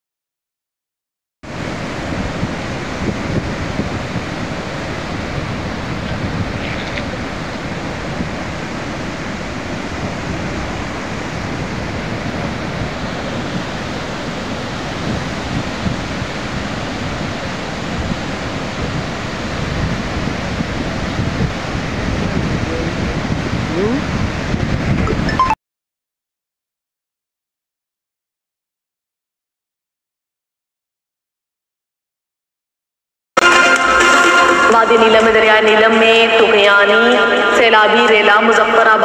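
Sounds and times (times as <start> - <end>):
river rushing: 1.5 - 25.6, 33.4 - 37.7
wind noise on microphone: 1.5 - 25.6.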